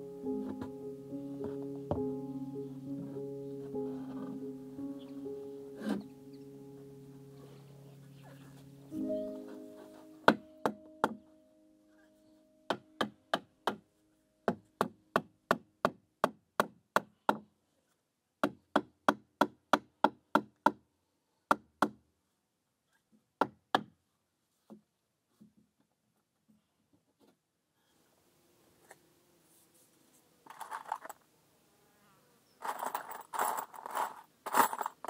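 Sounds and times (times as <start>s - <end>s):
hammer striking nails into wood: 12.7s - 13.8s, 14.5s - 17.5s.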